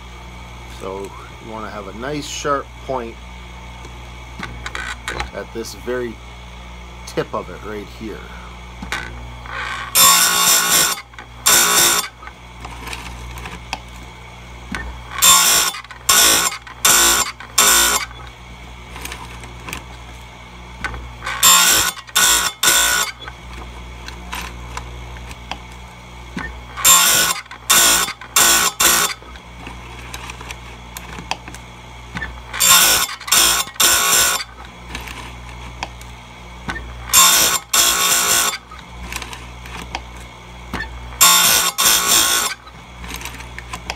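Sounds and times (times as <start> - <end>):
grinder motor humming: 0.0 - 43.9
grinding wheel on chain: 8.9 - 12.3, 15.1 - 18.3, 20.8 - 23.4, 26.7 - 31.2, 32.2 - 35.6, 37.0 - 39.9, 41.2 - 43.9.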